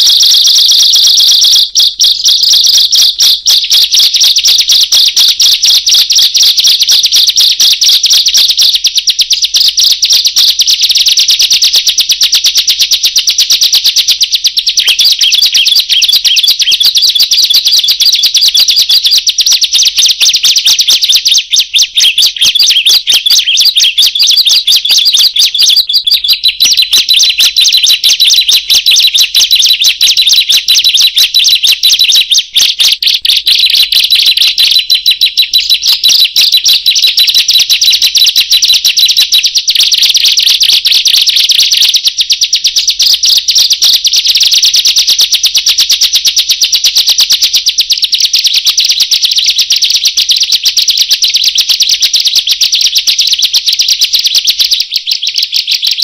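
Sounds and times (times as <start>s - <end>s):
bird singing rapid chirps: 0.0s - 10.8s, 14.4s - 39.9s, 54.3s - 56.0s.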